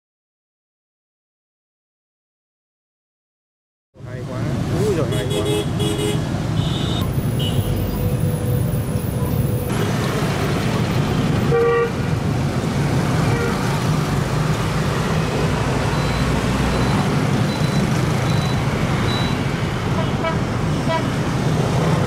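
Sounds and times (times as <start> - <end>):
motorbikes and scooters passing: 4.1 - 22.0
vehicle horn honking: 5.1 - 8.0, 11.5 - 12.0, 19.9 - 21.1.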